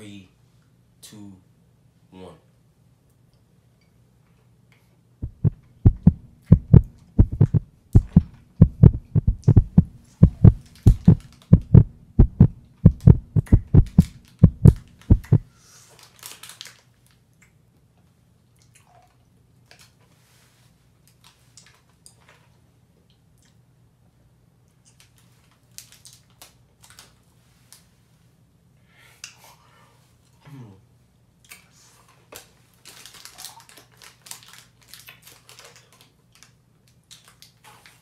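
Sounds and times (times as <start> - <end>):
low hum: 5.2 - 15.4
heartbeat thumps: 5.2 - 15.5
candy packet crinkling: 16.0 - 17.1, 25.6 - 27.1, 32.8 - 37.6.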